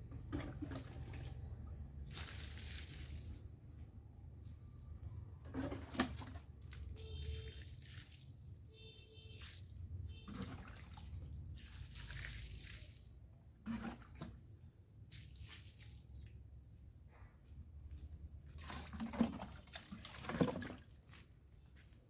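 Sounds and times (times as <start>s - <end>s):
water poured from ladle: 2.0s - 3.4s, 7.0s - 8.5s, 9.2s - 14.3s, 18.6s - 21.2s.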